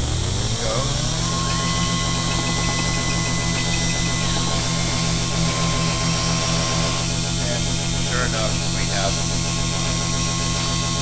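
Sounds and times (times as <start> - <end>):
high machine whine: 0.0 - 11.0
router machine hum: 0.0 - 11.0.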